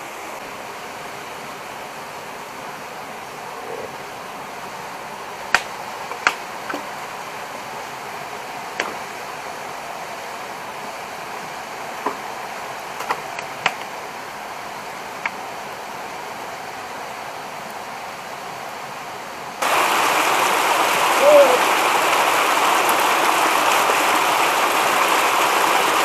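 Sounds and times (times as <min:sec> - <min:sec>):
stream water rushing: 0:00.0 - 0:26.0
fire crackling pops: 0:05.5 - 0:06.9, 0:13.0 - 0:13.9.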